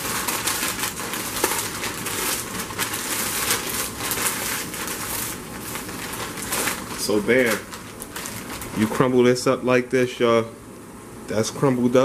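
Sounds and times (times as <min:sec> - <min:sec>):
plastic snack bag crinkling: 0:00.0 - 0:09.2.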